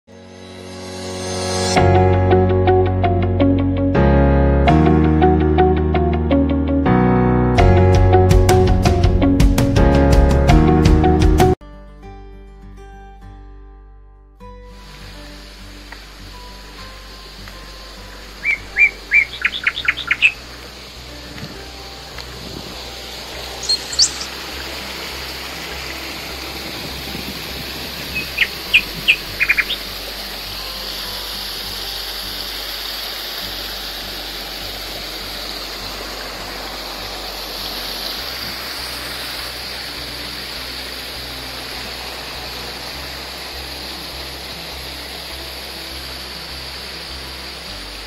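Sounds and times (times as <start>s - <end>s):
stream running over rocks: 14.7s - 48.0s
birds chirping: 18.2s - 20.5s, 23.5s - 24.4s, 27.9s - 30.0s.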